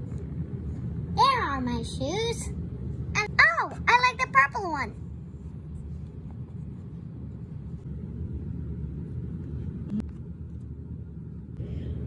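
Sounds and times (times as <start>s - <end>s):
low background rumble: 0.0s - 12.0s.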